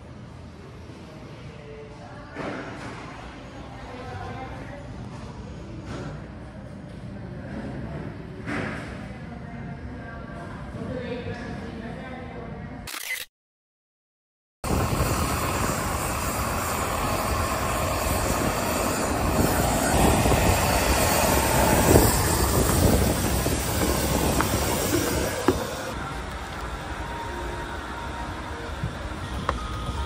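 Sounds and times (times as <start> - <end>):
wind: 0.0 - 13.3, 14.6 - 30.0
ground equipment running: 14.7 - 30.0.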